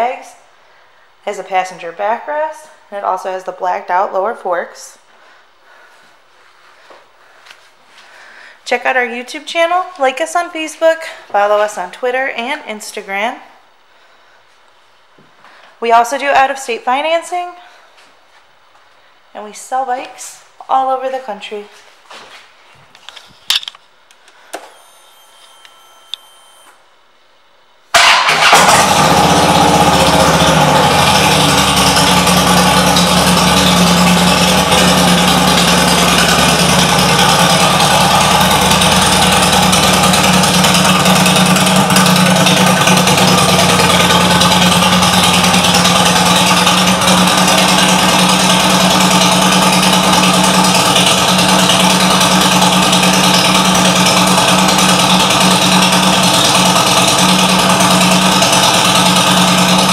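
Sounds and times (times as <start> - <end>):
motorcycle engine starting and idling: 27.9 - 59.9.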